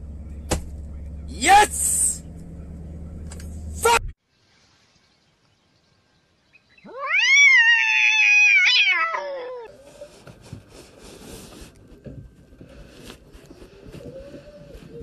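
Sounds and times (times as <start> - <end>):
cat yowling: 6.9 - 9.7.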